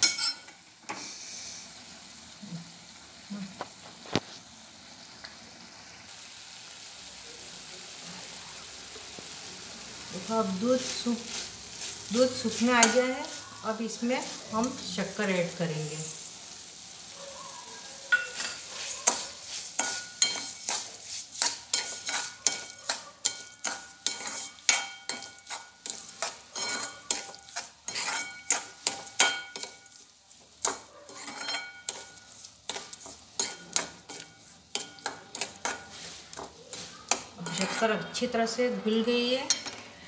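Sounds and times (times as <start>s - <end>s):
metal clinks on a pan: 0.0s - 0.6s, 18.1s - 19.2s, 26.5s - 29.9s
spoon stirring and scraping a pan: 0.0s - 2.3s, 10.0s - 17.1s, 17.9s - 40.0s
faint sizzle: 0.0s - 40.0s.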